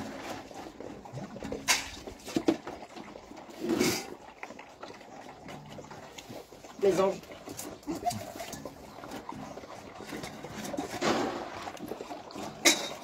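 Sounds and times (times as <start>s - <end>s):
dogs making small noises: 0.0s - 13.0s.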